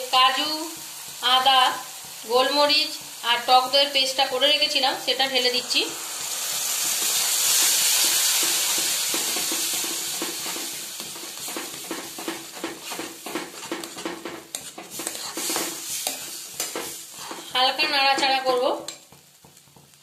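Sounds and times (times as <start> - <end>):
paste sizzling in hot oil: 0.0 - 20.0
spatula scraping the pan: 5.5 - 20.0.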